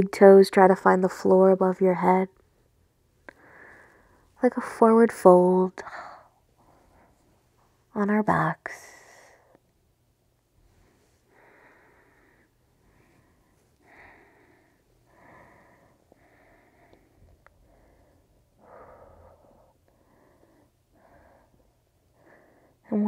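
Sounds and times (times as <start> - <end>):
low room hum: 0.0 - 23.0
person breathing softly: 3.3 - 4.4, 5.8 - 7.7, 8.7 - 9.6, 10.6 - 22.9.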